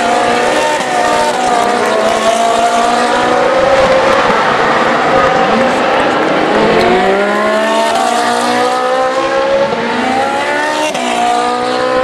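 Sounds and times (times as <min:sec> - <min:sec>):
race car engines at full throttle: 0:00.0 - 0:12.0.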